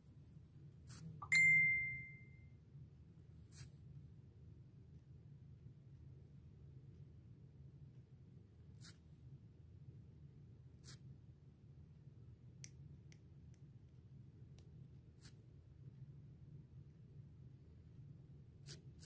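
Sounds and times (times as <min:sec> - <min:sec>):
low steady hum: 0:00.0 - 0:18.6.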